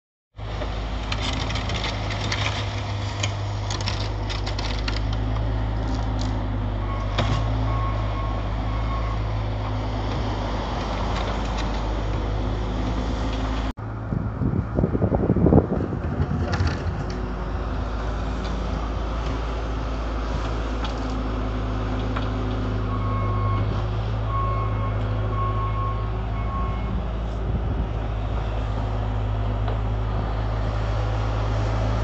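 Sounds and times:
loader engine humming: 0:00.4 - 0:32.0
knocks and scrapes: 0:16.0 - 0:17.3.

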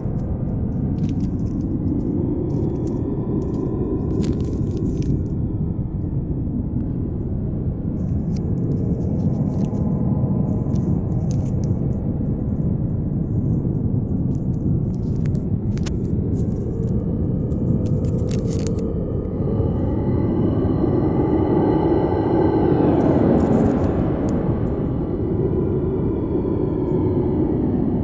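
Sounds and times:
faint crackles and clicks: 0:00.0 - 0:06.1, 0:07.8 - 0:19.9, 0:22.8 - 0:24.9
steady low rumbling: 0:00.0 - 0:28.0.

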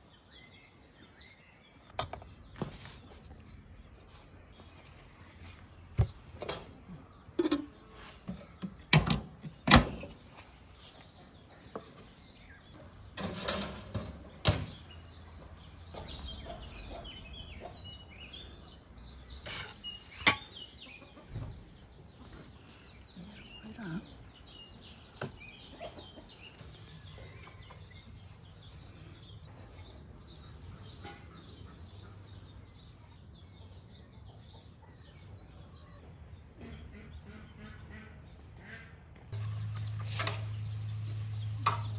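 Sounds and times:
birds chirping: 0:00.0 - 0:41.9
utensils and trays clattering: 0:13.2 - 0:14.2, 0:19.4 - 0:20.6.

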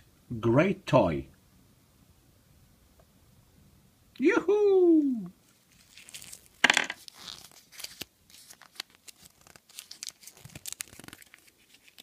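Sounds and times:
paper leaflet crinkling: 0:05.4 - 0:12.0.

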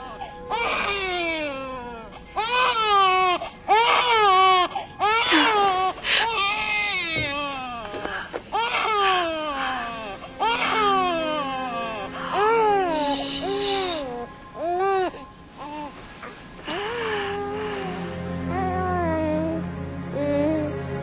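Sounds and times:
newborn baby crying: 0:00.0 - 0:16.0.

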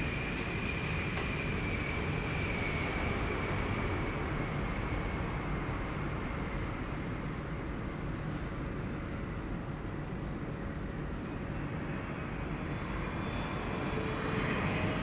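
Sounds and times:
jet engines whining: 0:00.0 - 0:07.4.

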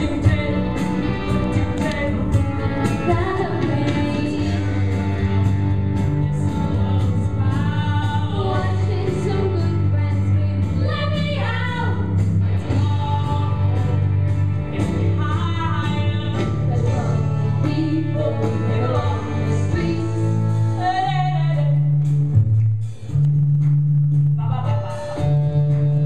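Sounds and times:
girl singing: 0:00.0 - 0:04.8, 0:06.4 - 0:12.1
pop instrumental backing: 0:00.0 - 0:26.0.

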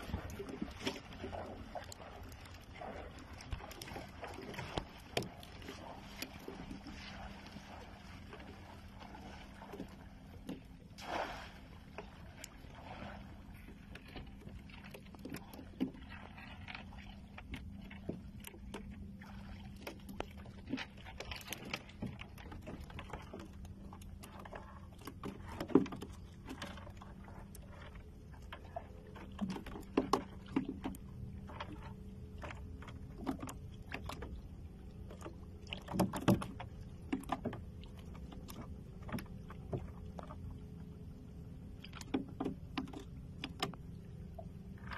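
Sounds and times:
steady low hum: 0:00.0 - 0:44.9
seawater splashing around legs: 0:10.8 - 0:13.4.

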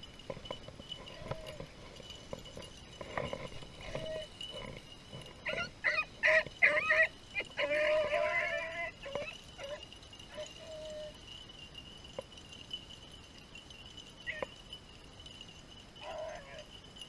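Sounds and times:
dogs baying: 0:00.4 - 0:11.2, 0:14.2 - 0:14.6, 0:16.0 - 0:16.8.

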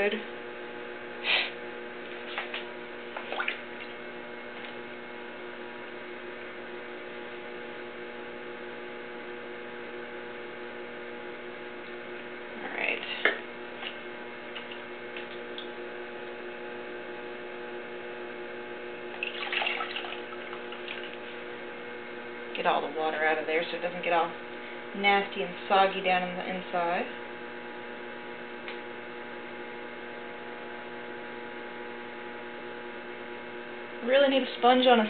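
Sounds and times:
potter's wheel humming: 0:00.0 - 0:35.0.

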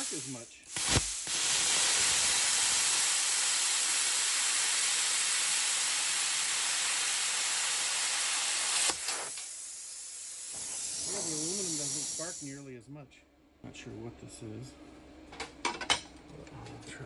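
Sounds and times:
plasma cutter hissing: 0:00.0 - 0:12.6.

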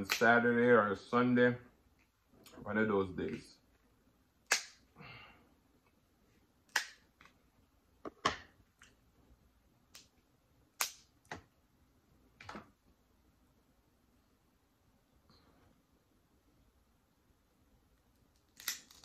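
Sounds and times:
crab shells cracking: 0:18.3 - 0:19.0.

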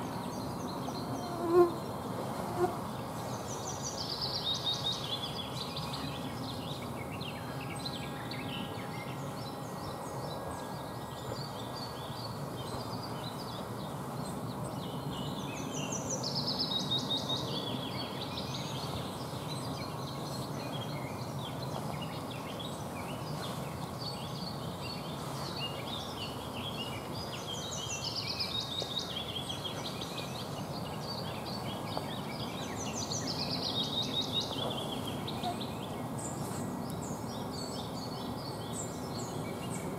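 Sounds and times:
songbirds singing: 0:00.0 - 0:39.9
steady background hiss: 0:00.0 - 0:39.9.

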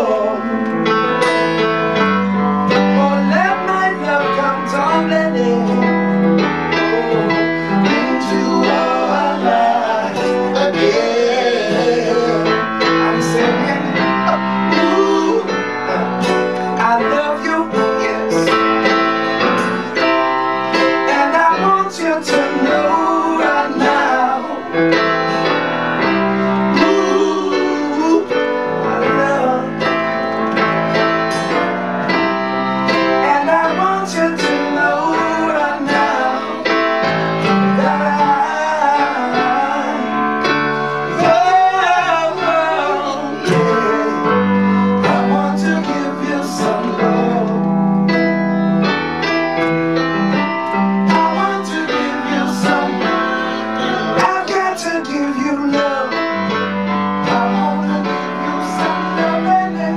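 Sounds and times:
voices singing: 0:00.0 - 0:01.2, 0:01.9 - 0:48.3, 0:50.3 - 0:59.9
acoustic guitar strumming: 0:00.0 - 0:48.2, 0:48.8 - 0:59.9
piano: 0:00.0 - 0:59.9.

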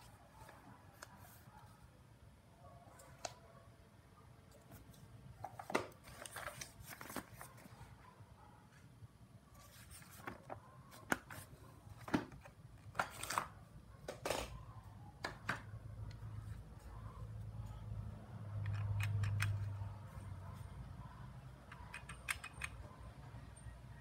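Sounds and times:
paper rustling: 0:04.7 - 0:07.9, 0:09.5 - 0:13.5
pages flipping: 0:05.4 - 0:07.8, 0:09.6 - 0:13.6.

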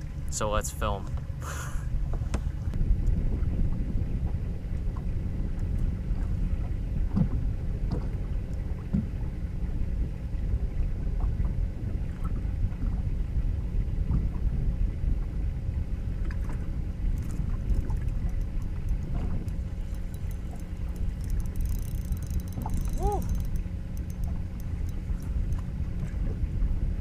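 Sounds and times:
wind rumble: 0:00.0 - 0:27.0
water chop around boat: 0:02.0 - 0:27.0
faint ticking: 0:18.3 - 0:25.6.

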